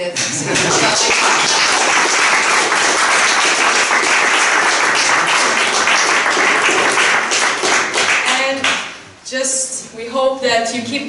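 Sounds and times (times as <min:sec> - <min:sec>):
audience applauding: 0:00.2 - 0:08.8.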